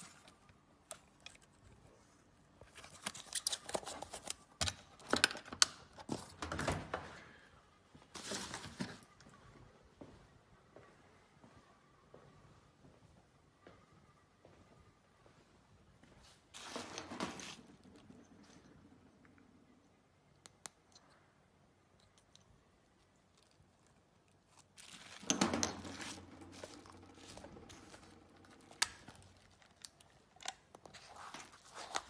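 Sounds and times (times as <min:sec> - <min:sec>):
bubble wrap crinkling: 0:25.9 - 0:32.0.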